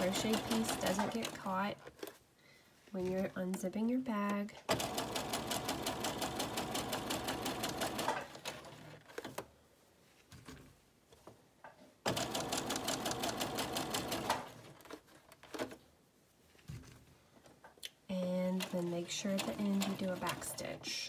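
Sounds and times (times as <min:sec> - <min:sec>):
sewing machine stitching: 0:00.0 - 0:01.8, 0:04.7 - 0:09.3, 0:12.1 - 0:15.7, 0:18.4 - 0:21.0.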